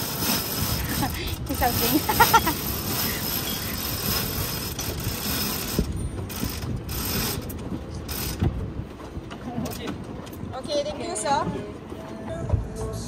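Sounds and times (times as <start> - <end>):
rope rasping through pulley blocks: 0.0 - 8.5.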